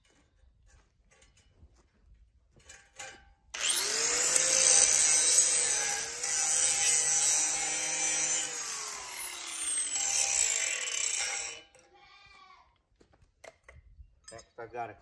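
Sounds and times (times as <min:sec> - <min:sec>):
angle grinder grinding metal: 0:03.6 - 0:11.7.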